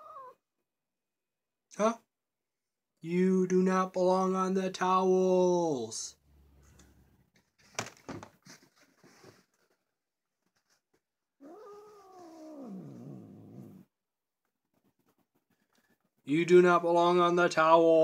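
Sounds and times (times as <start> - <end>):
cat yowling: 0.0 - 0.4, 11.4 - 13.8
faint clicks and rustles: 6.6 - 13.0, 14.4 - 16.3.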